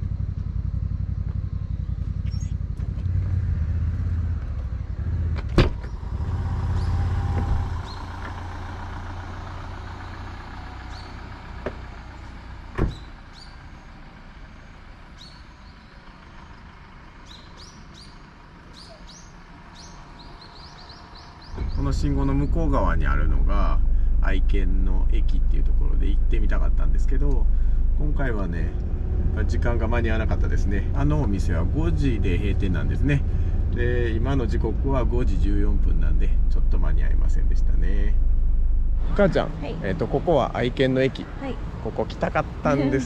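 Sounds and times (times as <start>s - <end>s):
van engine running: 0.0s - 43.0s
faint bird chirps: 1.6s - 2.7s, 5.8s - 8.2s, 9.9s - 11.2s, 12.9s - 16.6s, 17.2s - 22.2s
door shutting with bang: 5.4s - 6.1s, 12.7s - 13.2s.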